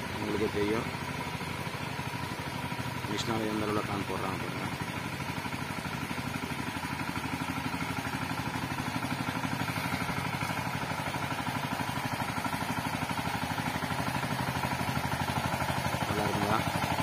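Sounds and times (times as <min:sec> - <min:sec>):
small engine running under load: 0:00.0 - 0:17.0
weeder cutting through soil: 0:15.7 - 0:17.0.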